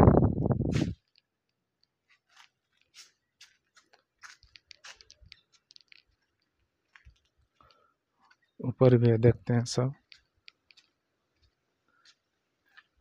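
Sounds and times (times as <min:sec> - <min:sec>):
footsteps on tiled walkway: 0:02.1 - 0:07.8.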